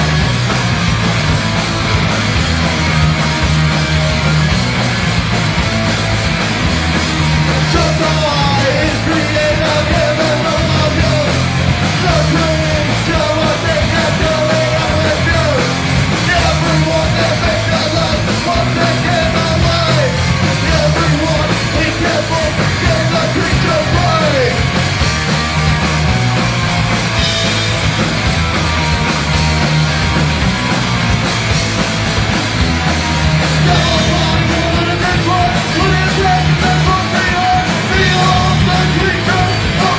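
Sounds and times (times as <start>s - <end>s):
bass guitar: 0.0s - 39.9s
drum kit: 0.0s - 39.9s
electric guitars: 0.0s - 39.9s
singer yelling into microphone: 33.6s - 39.9s.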